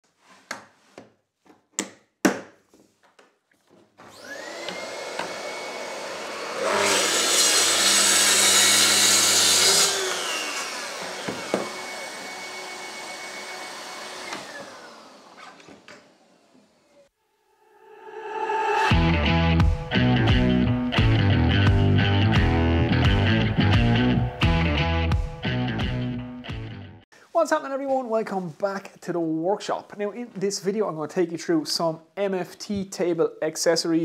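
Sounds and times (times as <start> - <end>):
plunge saw cutting board: 4.0 - 17.1
dust extractor running: 4.1 - 15.4.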